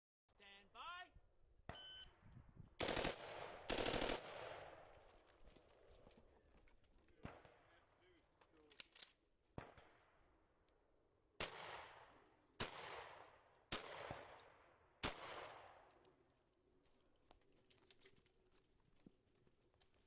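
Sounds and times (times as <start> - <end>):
shotgun firing: 2.8 - 4.8, 11.4 - 15.9
faint sharp cracks and clicks: 8.4 - 10.8, 16.8 - 19.1.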